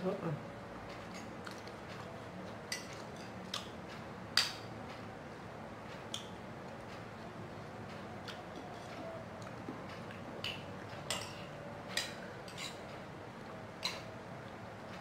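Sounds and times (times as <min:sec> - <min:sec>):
faint room hum: 0:00.0 - 0:15.0
spoon clinking against plate: 0:10.4 - 0:12.8.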